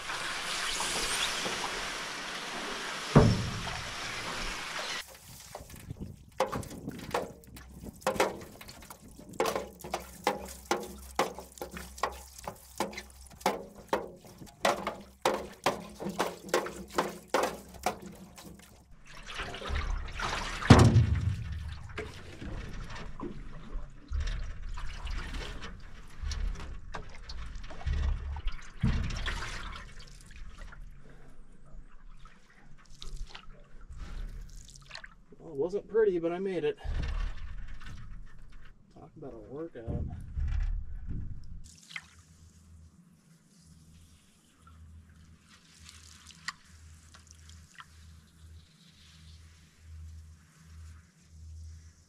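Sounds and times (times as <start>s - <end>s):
paddle strokes splashing: 3.0s - 23.8s
loud thud: 3.2s - 3.9s, 20.7s - 21.9s.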